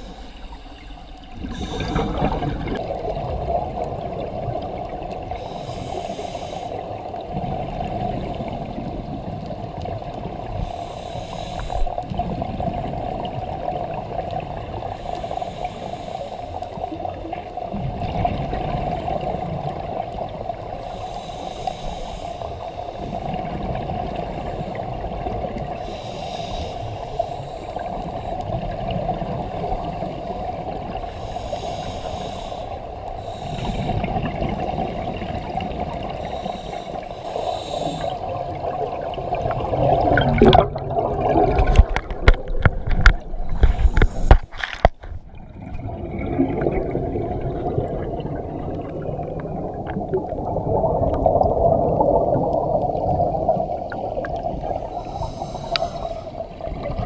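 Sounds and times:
scuba regulator breathing: 0:00.0 - 0:02.8, 0:05.3 - 0:07.0, 0:10.5 - 0:12.0, 0:14.8 - 0:17.0, 0:20.7 - 0:23.4, 0:25.7 - 0:28.6, 0:29.5 - 0:40.0, 0:42.9 - 0:45.0, 0:48.5 - 0:50.1, 0:54.5 - 0:56.6
steady watery hum: 0:00.0 - 0:57.0
exhaled bubbles bursting: 0:01.4 - 0:04.6, 0:38.3 - 0:44.4, 0:45.3 - 0:54.8
bubbles crackling and knocking: 0:01.4 - 0:04.8, 0:38.9 - 0:54.8.

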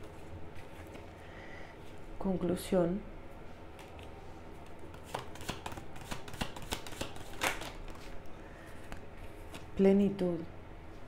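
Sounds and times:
cards rustling: 0:03.8 - 0:09.7
cards clicking: 0:04.9 - 0:08.0.

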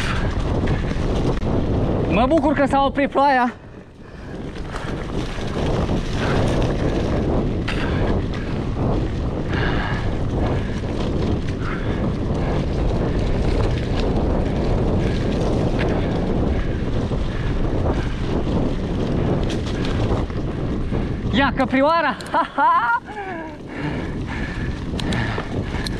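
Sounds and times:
bike clicks and rattles: 0:00.0 - 0:25.9
wind buffeting microphone: 0:00.0 - 0:25.9
bike riding over dirt trail: 0:03.7 - 0:21.4.

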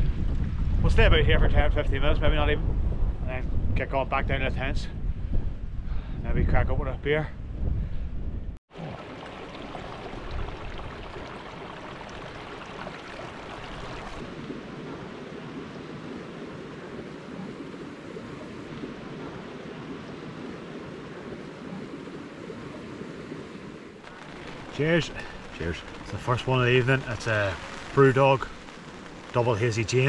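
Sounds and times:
stream flowing over rocks: 0:08.7 - 0:14.5.

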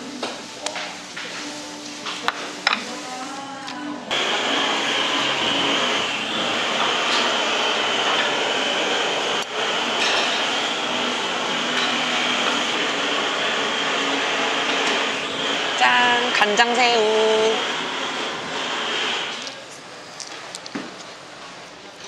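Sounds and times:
loud rushing noise: 0:04.1 - 0:16.3.

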